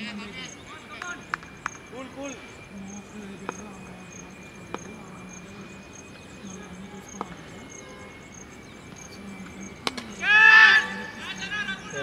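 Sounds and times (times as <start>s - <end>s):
faint steady high tone: 0.0s - 12.0s
insect chirping: 0.0s - 12.0s.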